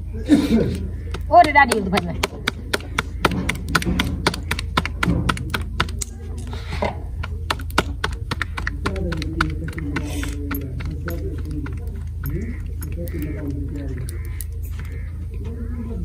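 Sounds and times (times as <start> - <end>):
dough slapped between palms: 1.4 - 6.1, 7.2 - 10.1.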